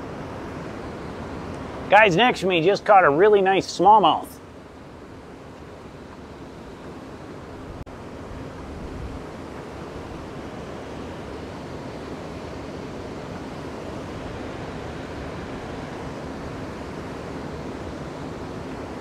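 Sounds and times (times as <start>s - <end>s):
river water over a dam: 0.0s - 19.0s
wind buffeting microphone: 7.5s - 10.4s.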